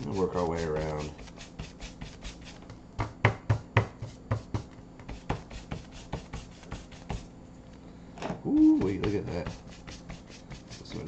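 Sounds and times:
paintbrush scrubbing dry strokes: 0.0s - 2.6s, 5.1s - 7.3s, 8.7s - 11.0s.

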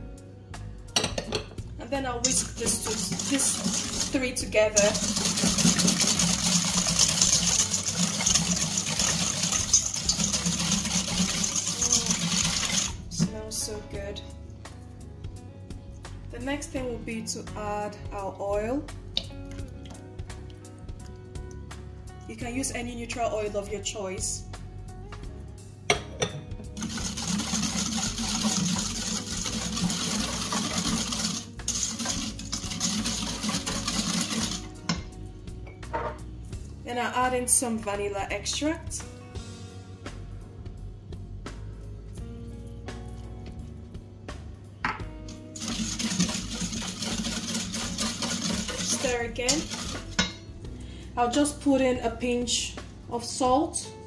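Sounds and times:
whisk rattling in metal bowl: 2.2s - 13.0s, 26.8s - 35.0s, 45.6s - 50.4s
batter sloshing: 2.3s - 13.2s, 26.8s - 34.7s, 45.5s - 50.3s.

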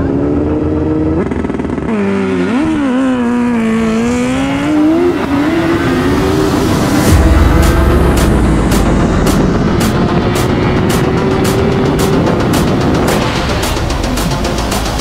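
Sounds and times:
motorcycle engine at full throttle: 0.0s - 15.0s.

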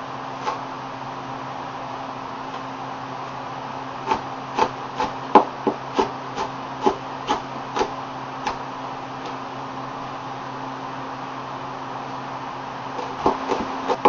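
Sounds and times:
knife chopping on plastic board: 4.1s - 7.9s, 13.0s - 14.0s.

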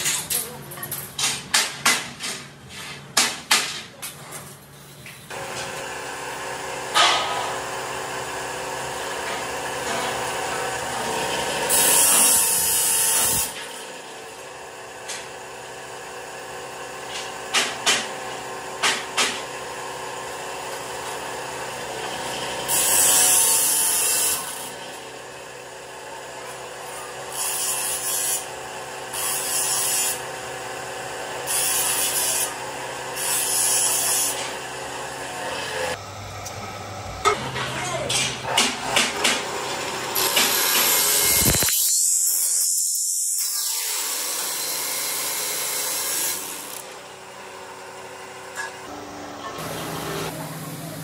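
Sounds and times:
cut-off saw grinding through steel: 5.3s - 16.0s, 19.7s - 36.0s, 38.5s - 48.9s.

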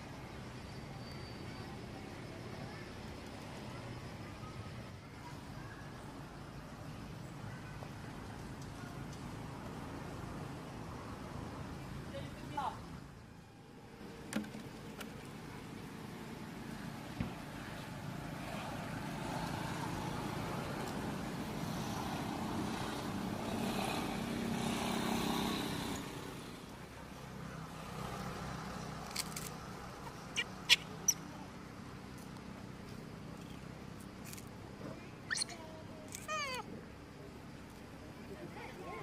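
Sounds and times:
motor vehicle passing: 18.1s - 31.6s.

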